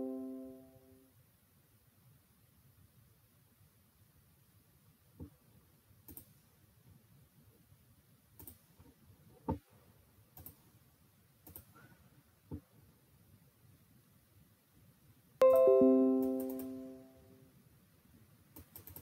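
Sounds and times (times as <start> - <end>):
computer mouse clicks: 6.1 - 6.4, 8.4 - 8.7, 10.4 - 10.6, 11.4 - 11.8, 18.6 - 19.0.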